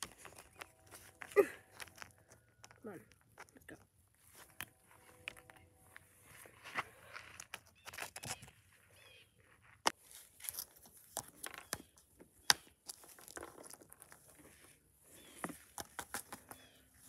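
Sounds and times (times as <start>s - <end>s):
plastic figurines tapping on concrete: 0.0s - 3.9s, 11.0s - 14.2s, 15.4s - 16.7s.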